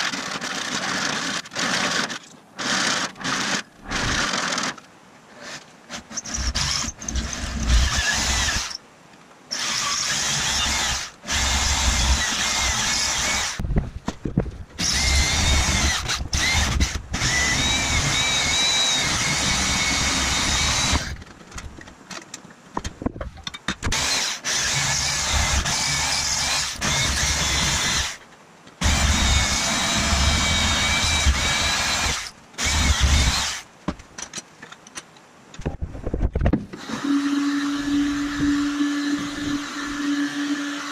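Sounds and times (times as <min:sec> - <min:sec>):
power tool whining: 0:14.8 - 0:21.2, 0:23.9 - 0:28.2, 0:28.8 - 0:33.6, 0:36.8 - 0:40.9.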